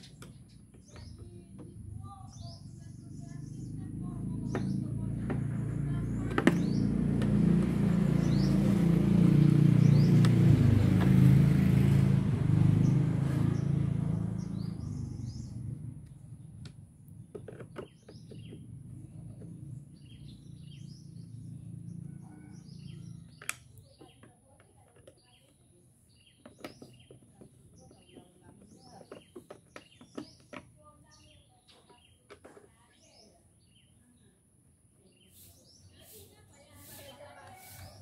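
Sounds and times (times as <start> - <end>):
vehicle engine rumble passing: 0.0 - 24.1
birds chirping: 0.0 - 38.0.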